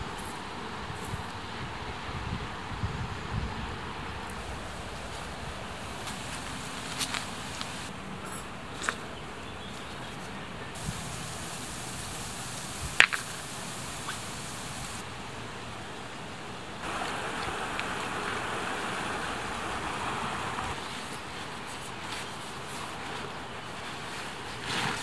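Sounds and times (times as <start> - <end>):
steady outdoor hiss: 0.0 - 25.0
river flowing: 3.8 - 9.4, 10.4 - 24.6
stones clacking together: 13.0 - 13.4.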